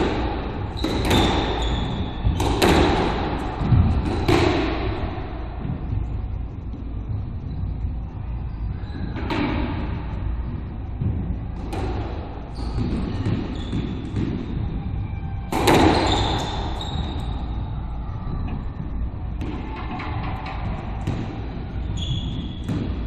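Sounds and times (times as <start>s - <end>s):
squash ball hits echoing: 0.0s - 6.0s, 9.1s - 17.6s, 19.3s - 23.0s
steady low rumble: 2.0s - 15.7s, 16.8s - 22.0s.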